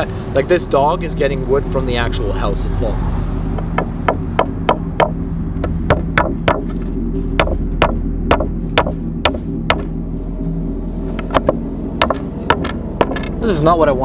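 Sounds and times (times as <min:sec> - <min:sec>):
hammer striking nail into wood: 0:03.7 - 0:06.7, 0:07.4 - 0:09.9, 0:11.4 - 0:13.3.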